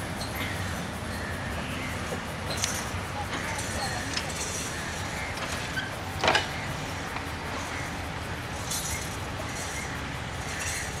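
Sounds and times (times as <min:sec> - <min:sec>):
rail vehicle engine rumble: 0:00.0 - 0:11.0.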